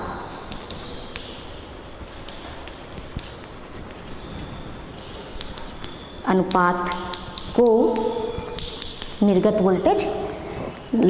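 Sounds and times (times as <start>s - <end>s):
pen scratching on paper: 0.3s - 4.2s, 5.0s - 9.2s.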